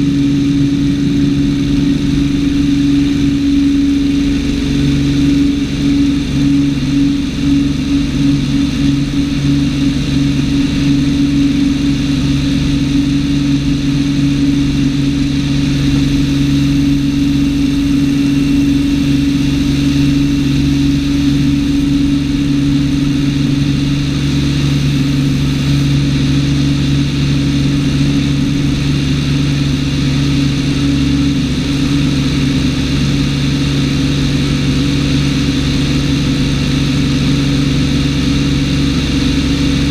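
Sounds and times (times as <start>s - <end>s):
propeller plane engine drone: 0.0s - 39.9s.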